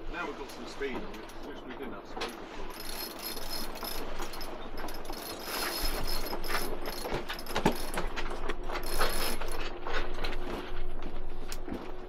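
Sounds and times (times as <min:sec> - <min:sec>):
winch ratcheting clicks: 0:02.2 - 0:08.1, 0:08.8 - 0:09.6.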